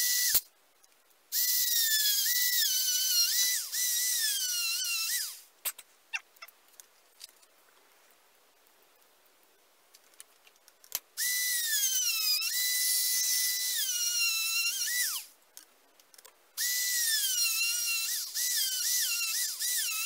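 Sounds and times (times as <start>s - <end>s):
electric drill whining: 16.6s - 20.0s.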